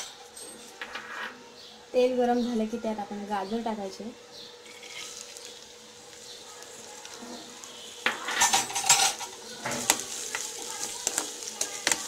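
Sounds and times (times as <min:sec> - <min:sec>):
carrots sizzling in hot oil: 0:02.4 - 0:12.0
spatula scraping and clattering: 0:04.7 - 0:05.6, 0:07.3 - 0:12.0.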